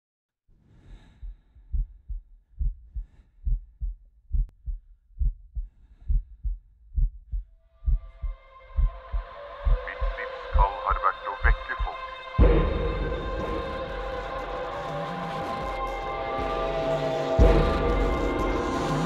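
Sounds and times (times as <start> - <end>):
heartbeat thumps: 1.1 - 14.0.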